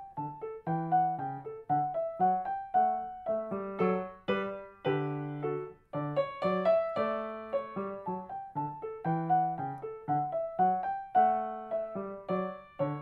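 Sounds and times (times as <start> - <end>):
grand piano playing: 0.0 - 13.0.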